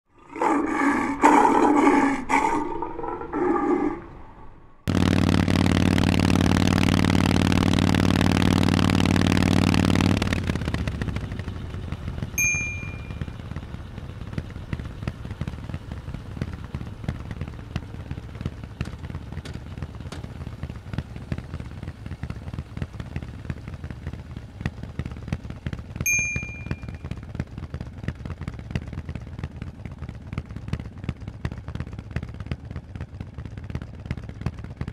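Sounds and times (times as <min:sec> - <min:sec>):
loud steady drone: 0:00.3 - 0:19.3
motorcycle engine idling: 0:04.9 - 0:34.9
short high beeps: 0:26.1 - 0:26.9.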